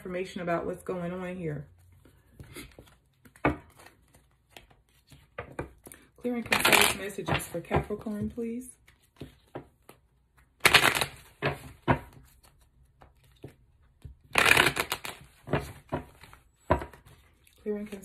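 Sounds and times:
cards tapping: 0:09.0 - 0:18.0
cards riffling: 0:10.6 - 0:13.5, 0:14.2 - 0:16.4.

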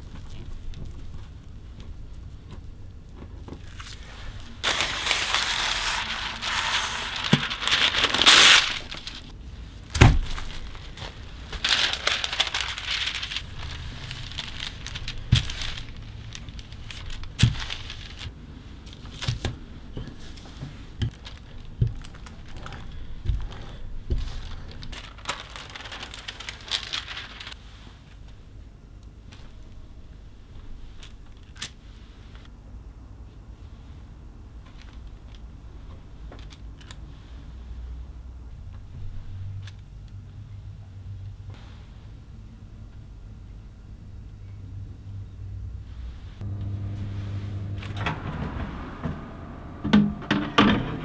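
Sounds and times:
paper rustling: 0:00.0 - 0:28.4
plastic wrap and paper crinkling: 0:00.0 - 0:28.4, 0:30.6 - 0:32.5.

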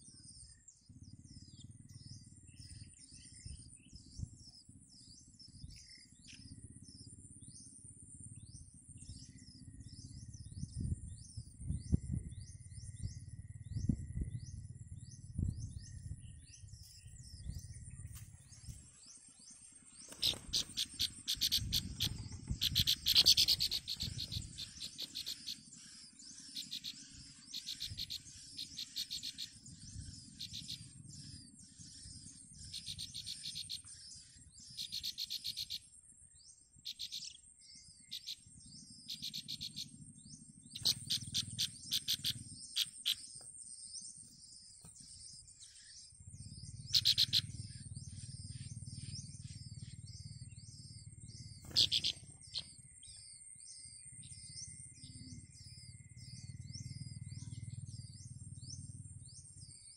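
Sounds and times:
low rumble: 0:01.0 - 0:28.9, 0:37.6 - 0:51.6
insect trill: 0:12.2 - 0:59.9
nestlings chirping: 0:16.6 - 0:35.9, 0:36.5 - 0:58.8.

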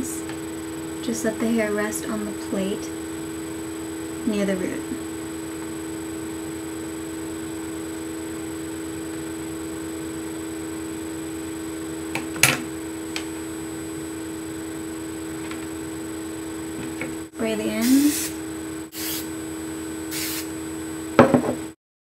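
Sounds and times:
electrical hum: 0:00.0 - 0:21.8.

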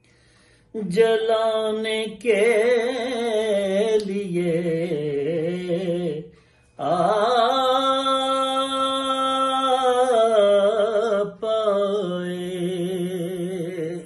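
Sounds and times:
man singing unaccompanied: 0:00.7 - 0:14.0.

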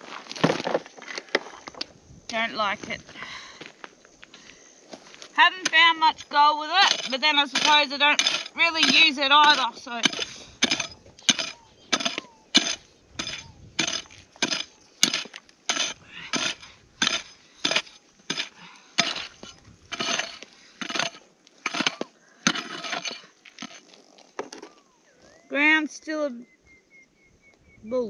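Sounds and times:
digging tool striking ground: 0:05.4 - 0:24.7.

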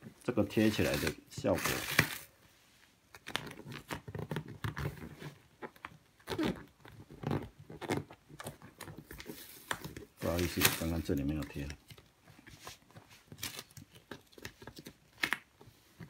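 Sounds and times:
paper backing rustling: 0:00.4 - 0:02.4, 0:06.9 - 0:16.0.

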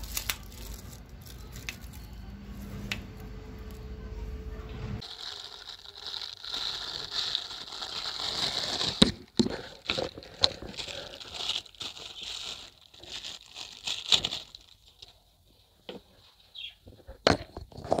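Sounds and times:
plastic bag crinkling: 0:00.0 - 0:02.3, 0:05.0 - 0:15.2.

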